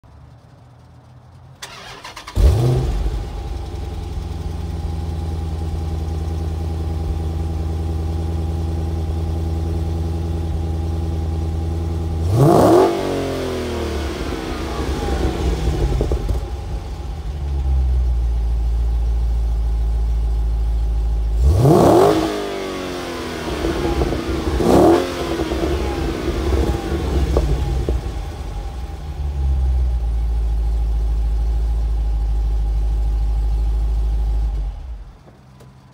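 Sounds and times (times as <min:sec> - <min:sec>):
car engine starting and idling: 0:00.0 - 0:35.9
engine revving: 0:01.6 - 0:05.0, 0:12.1 - 0:17.6, 0:21.4 - 0:29.2.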